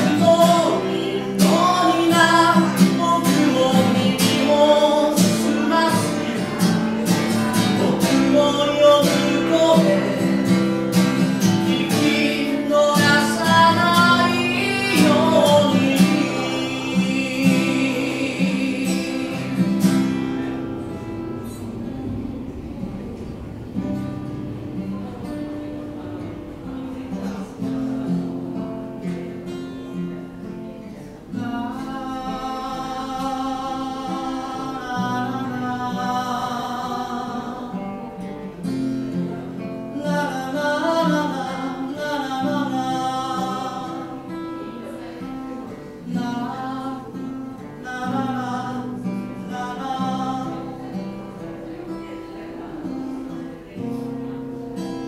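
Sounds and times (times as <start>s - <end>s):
man singing: 0.0s - 22.5s, 30.9s - 52.0s
acoustic guitar chords: 0.0s - 55.0s.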